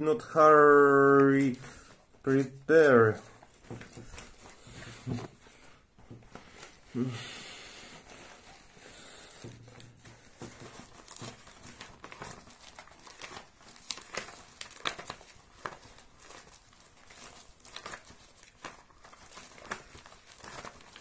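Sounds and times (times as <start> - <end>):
crinkling and rustling: 0.0 - 21.0.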